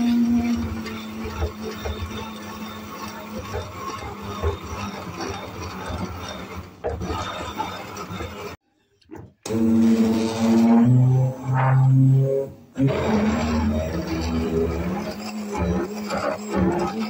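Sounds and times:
stick blender in thick batter: 0:00.0 - 0:08.6, 0:09.2 - 0:17.0.

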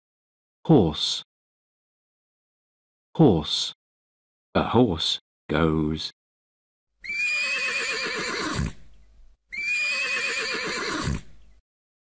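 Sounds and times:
horse whinnying: 0:07.0 - 0:08.9, 0:09.5 - 0:11.4.

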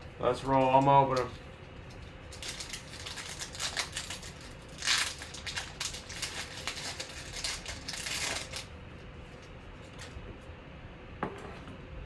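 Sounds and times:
foil wrapper tearing and crinkling: 0:02.3 - 0:08.7.

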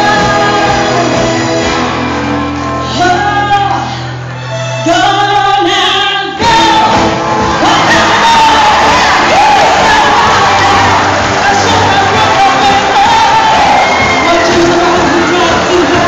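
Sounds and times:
people singing: 0:00.0 - 0:01.5, 0:07.6 - 0:16.0
live band playing: 0:00.0 - 0:16.0.

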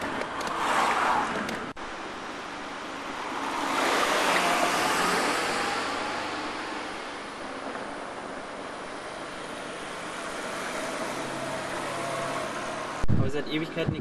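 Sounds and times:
car driving past: 0:00.5 - 0:01.4, 0:03.0 - 0:08.2, 0:09.8 - 0:13.0.

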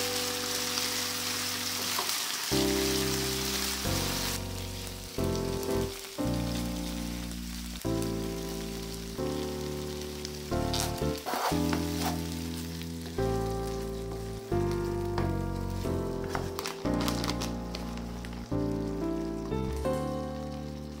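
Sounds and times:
soft background music chords: 0:00.0 - 0:21.0
short crackle: 0:10.6 - 0:12.6, 0:16.2 - 0:18.5.

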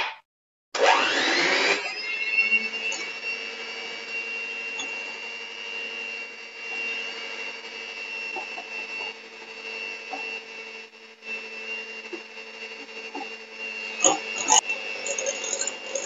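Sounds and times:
electric hand mixer whining: 0:00.8 - 0:16.0.

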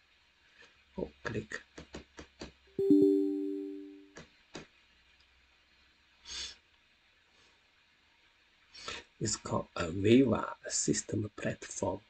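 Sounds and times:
computer chime: 0:02.8 - 0:04.0.

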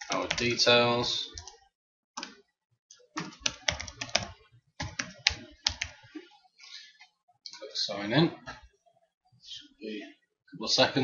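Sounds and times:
computer keyboard typing: 0:00.0 - 0:00.6, 0:01.3 - 0:01.6, 0:02.2 - 0:06.0.

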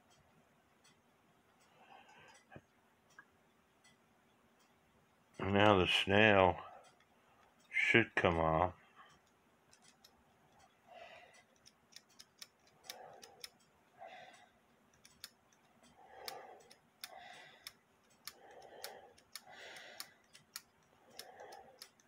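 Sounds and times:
small metallic clicks: 0:00.0 - 0:04.0, 0:06.8 - 0:22.0
soft breaths: 0:00.8 - 0:03.2, 0:05.9 - 0:07.8, 0:08.7 - 0:09.4, 0:10.0 - 0:22.0.

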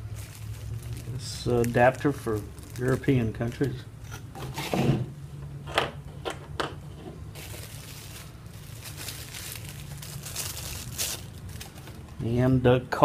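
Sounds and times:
plastic bag crinkling: 0:00.0 - 0:03.8, 0:07.3 - 0:12.2.

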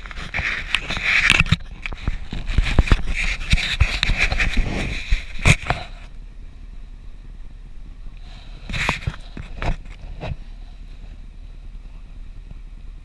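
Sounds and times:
camera rubbing and clicking: 0:00.0 - 0:06.1, 0:08.6 - 0:10.6
vehicle cabin hum: 0:00.0 - 0:13.0.

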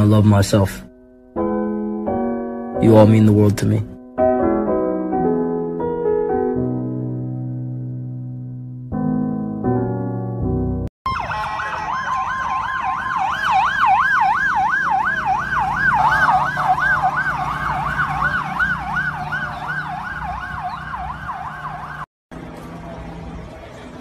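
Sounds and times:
siren yelping: 0:11.1 - 0:22.1
low hum of traffic: 0:11.1 - 0:24.0.

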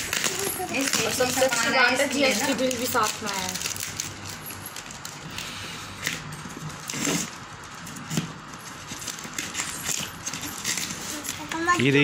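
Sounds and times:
plastic wrapping rustling: 0:00.0 - 0:12.0.

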